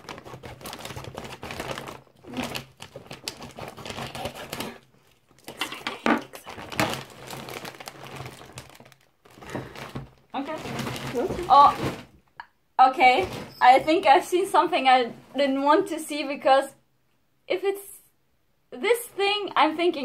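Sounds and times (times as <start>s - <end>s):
scissors cutting plastic: 0.0s - 4.8s
plastic bag crinkling: 0.0s - 12.2s.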